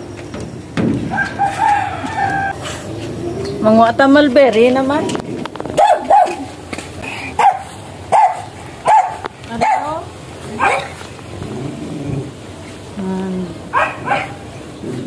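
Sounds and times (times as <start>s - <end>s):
dog barking: 5.8s - 6.5s, 7.4s - 11.0s, 13.7s - 14.5s.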